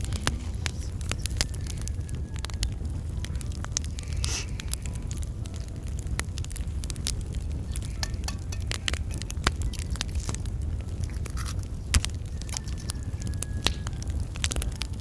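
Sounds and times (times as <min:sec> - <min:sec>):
egg cracking: 0:00.0 - 0:15.0
steady low rumble: 0:00.0 - 0:15.0
hands tapping metal pan: 0:08.0 - 0:09.1.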